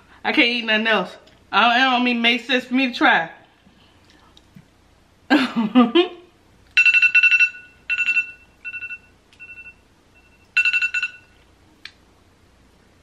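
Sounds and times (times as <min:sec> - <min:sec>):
pulsing two-tone electronic alarm: 0:06.8 - 0:11.3.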